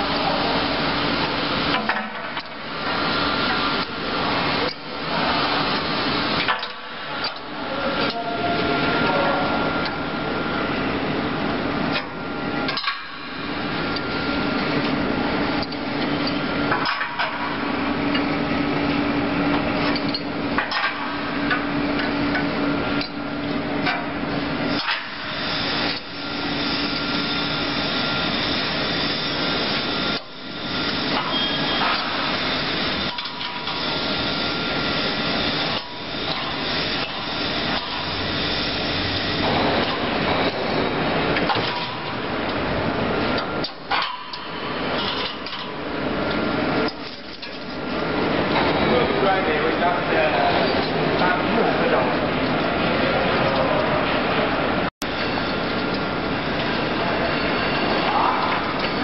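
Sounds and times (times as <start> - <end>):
running machinery hum: 0.0 - 59.0.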